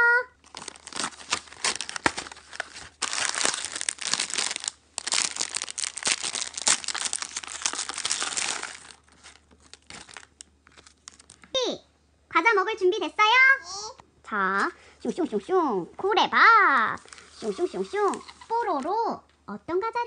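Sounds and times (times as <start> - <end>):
foil bag crinkling: 0.4 - 11.5, 17.0 - 18.8
cardboard box tearing open: 0.5 - 8.9.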